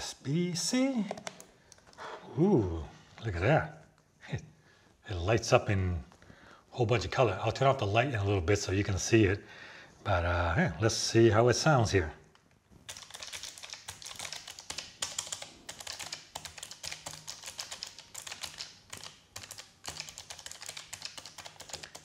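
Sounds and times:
fast typing on mechanical keyboard: 0:12.8 - 0:22.0.

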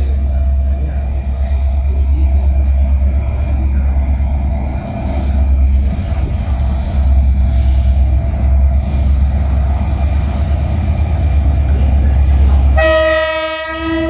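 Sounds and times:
freight train rumbling: 0:00.0 - 0:14.0
locomotive horn blast: 0:12.7 - 0:14.0.

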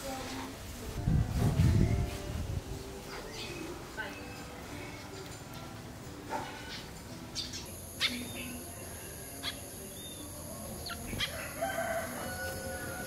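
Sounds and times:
small birds chirping: 0:06.6 - 0:11.6
distant rooster crowing: 0:10.9 - 0:13.0.

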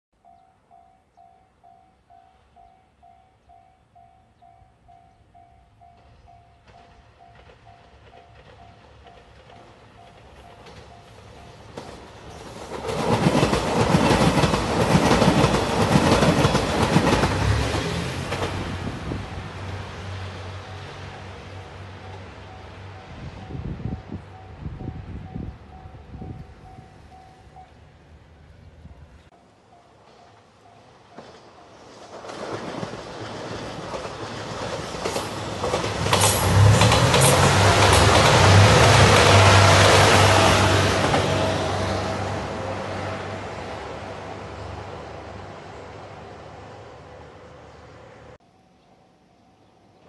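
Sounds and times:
diesel train passing: 0:00.2 - 0:48.4
wheels clicking over rail joints: 0:05.8 - 0:18.7, 0:30.0 - 0:39.9
wheels clattering over rail joints: 0:31.0 - 0:40.4.

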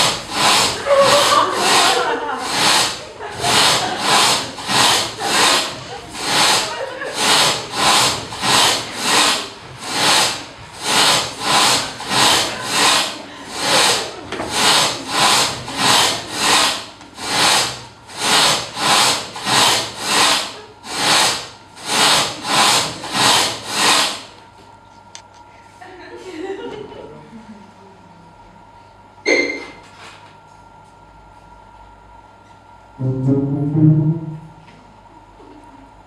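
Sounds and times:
hand saw sawing: 0:00.0 - 0:24.4.

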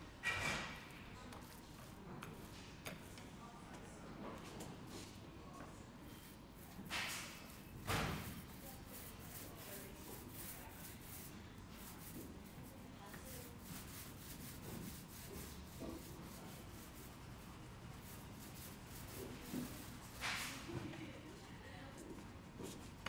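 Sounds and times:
brushing sounds: 0:06.0 - 0:20.7
paint roller rubbing on wall: 0:06.1 - 0:20.7.

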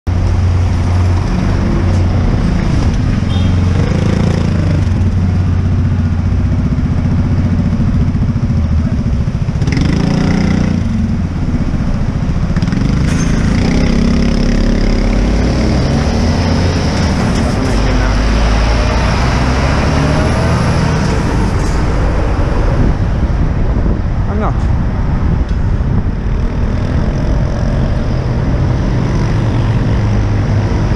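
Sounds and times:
lorry and car engines running: 0:10.8 - 0:29.1.

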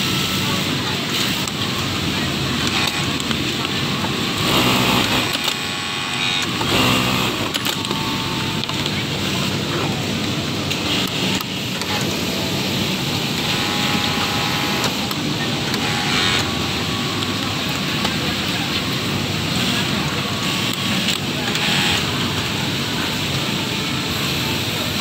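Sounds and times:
workshop mechanical hum: 0:00.0 - 0:25.0
sewing machine running: 0:02.5 - 0:08.2, 0:13.1 - 0:16.6, 0:19.5 - 0:22.3.

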